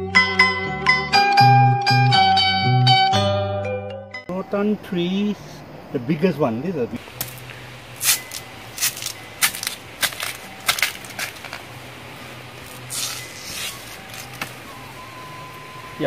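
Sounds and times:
knife cutting plant stalk: 0:08.0 - 0:11.6, 0:12.6 - 0:14.5
fibrous strips tearing: 0:12.6 - 0:14.5.

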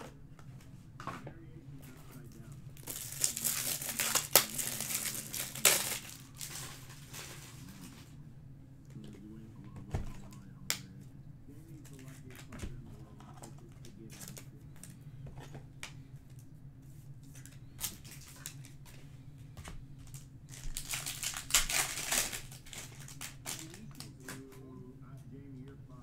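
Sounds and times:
foil pack tearing and crinkling: 0:02.8 - 0:07.8, 0:17.4 - 0:18.7, 0:20.1 - 0:24.4.

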